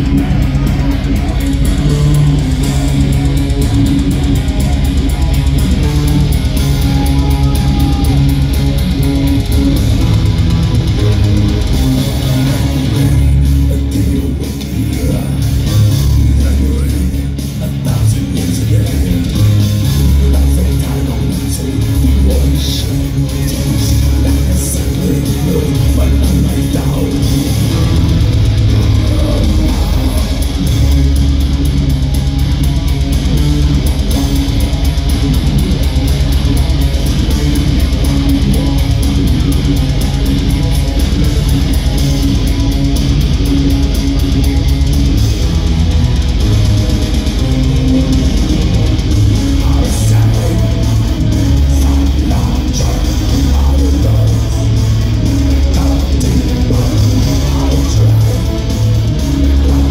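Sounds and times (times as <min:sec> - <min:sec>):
fast drum beat: 0:00.0 - 0:59.9
live metal band playing: 0:00.0 - 0:59.9.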